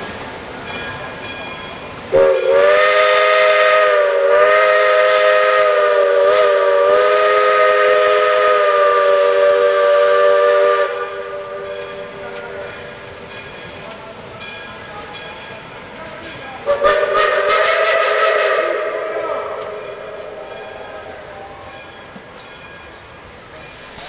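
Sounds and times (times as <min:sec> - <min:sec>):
steam locomotive whistle blowing: 0:02.1 - 0:13.3, 0:16.6 - 0:21.9.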